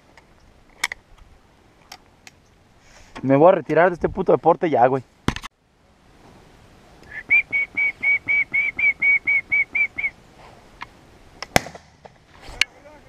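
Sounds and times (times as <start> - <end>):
short high whistled notes: 7.1 - 10.2.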